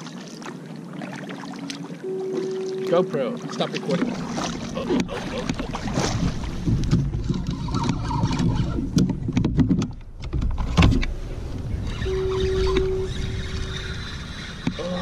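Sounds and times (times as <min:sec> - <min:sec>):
paddle strokes splashing: 0:00.0 - 0:15.0
short steady tone: 0:02.0 - 0:04.0, 0:12.0 - 0:13.7
steady low rumble: 0:08.8 - 0:14.9.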